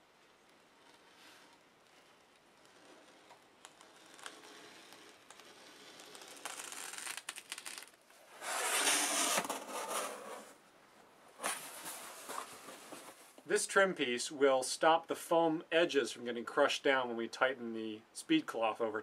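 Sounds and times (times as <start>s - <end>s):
rustling: 0.0s - 10.6s, 11.3s - 13.4s
hobby knife slicing foam: 0.5s - 10.2s.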